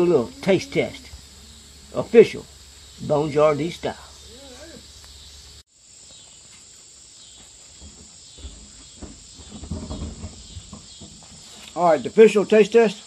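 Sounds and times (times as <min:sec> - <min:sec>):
crickets chirping: 0:00.0 - 0:13.0
rustling: 0:06.2 - 0:11.8.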